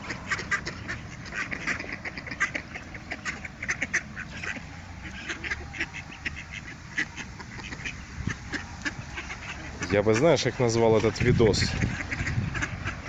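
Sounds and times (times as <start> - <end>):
ducks quacking: 0.0 - 13.0.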